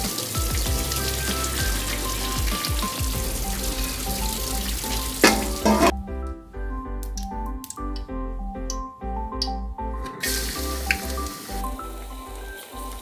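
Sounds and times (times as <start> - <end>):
water pouring into a sink: 0.0 - 5.9, 10.1 - 13.0
background music: 0.0 - 13.0.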